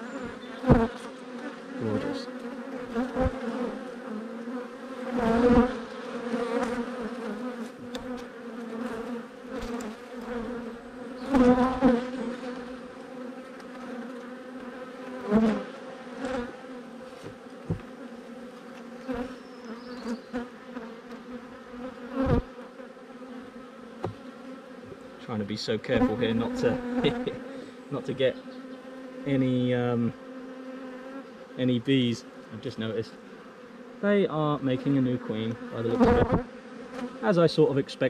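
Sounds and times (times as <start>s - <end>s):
bees buzzing: 0.0s - 38.0s
hive tool knocking wooden box: 17.2s - 18.0s, 24.0s - 25.0s, 35.6s - 36.5s.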